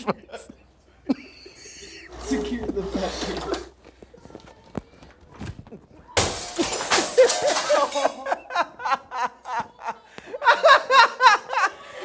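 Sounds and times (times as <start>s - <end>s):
people laughing: 0.0s - 2.5s, 6.6s - 12.0s.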